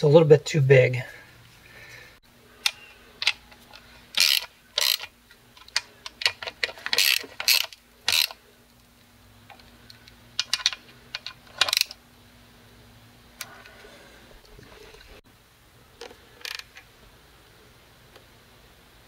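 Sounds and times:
socket ratchet clicking: 4.1s - 8.4s, 10.4s - 12.0s, 16.4s - 16.7s.

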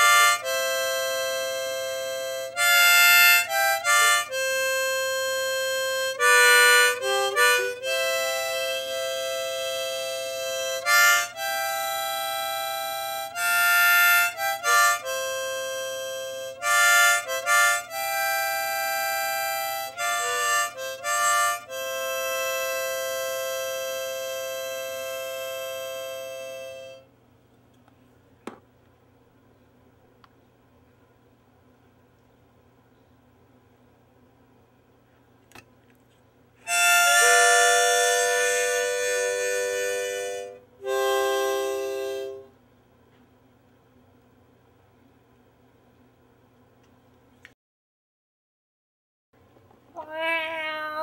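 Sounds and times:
harmonica playing chords: 0.0s - 27.1s, 36.6s - 42.5s
sharp click: 35.4s - 35.7s.

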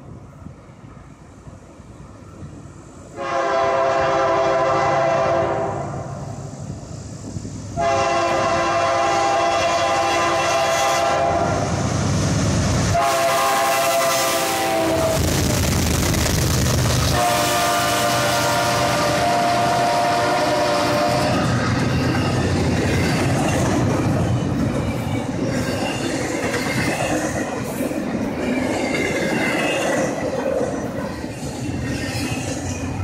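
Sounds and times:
train cars rolling by: 0.0s - 33.0s
train air horn blasts: 3.2s - 6.2s, 7.8s - 11.8s, 12.9s - 15.3s, 17.1s - 21.5s.

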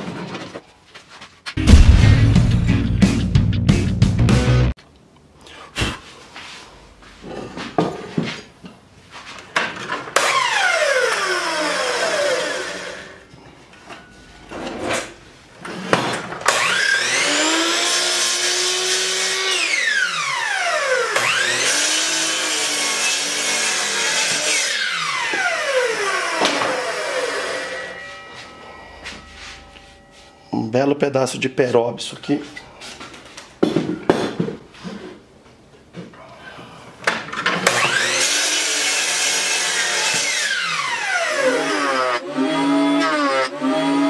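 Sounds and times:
miter saw cutting wood: 10.2s - 13.2s, 16.4s - 29.6s, 37.6s - 44.0s.

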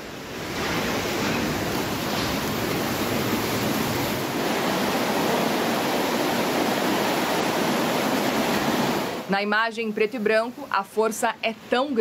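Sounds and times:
floodwater rushing: 0.0s - 9.3s.

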